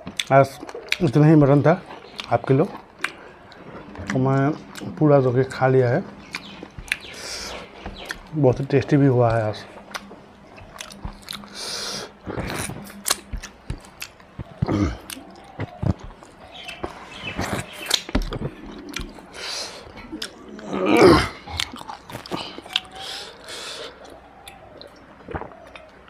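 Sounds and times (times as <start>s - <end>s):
lip-smacking: 0.0s - 5.0s, 6.1s - 26.0s
close chewing: 0.0s - 26.0s
sucking gravy off fingers: 0.3s - 24.6s
wet mouth clicks: 9.8s - 16.1s.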